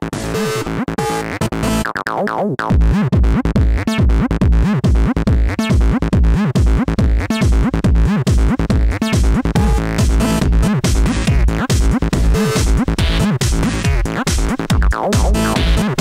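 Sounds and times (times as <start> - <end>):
drum machine kick beat: 1.6 - 16.0
synthesizer notes with pitch sweeps: 8.8 - 16.0.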